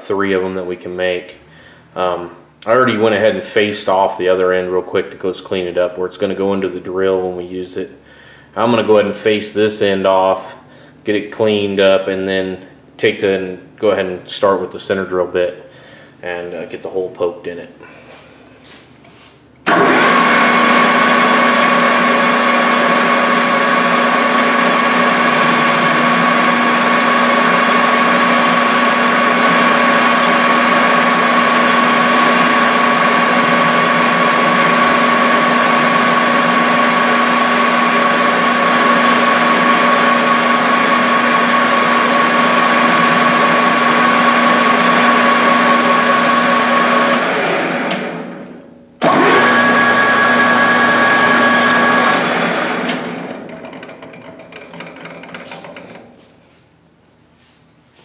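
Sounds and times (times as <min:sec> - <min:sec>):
metal lathe running: 0:19.7 - 0:48.2, 0:49.0 - 0:56.0.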